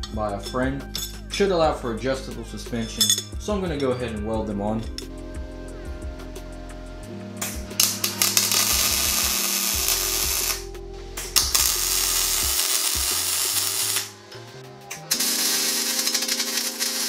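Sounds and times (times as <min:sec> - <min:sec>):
background music: 0:00.0 - 0:17.0
welding arc crackling: 0:07.4 - 0:14.2, 0:14.9 - 0:17.0.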